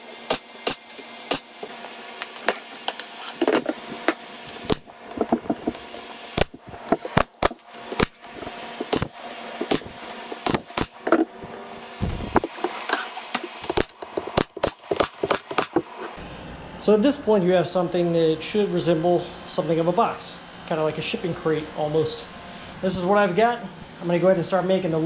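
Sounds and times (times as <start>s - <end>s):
nail gun shots: 0.2s - 1.5s, 9.7s - 11.0s
dull thump: 12.0s - 12.5s.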